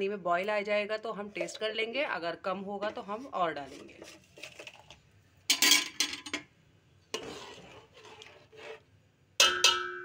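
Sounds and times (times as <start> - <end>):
metal spoon stirring rice in pot: 2.9 - 5.0, 7.1 - 10.0
spoon clinking against pot: 9.4 - 10.0.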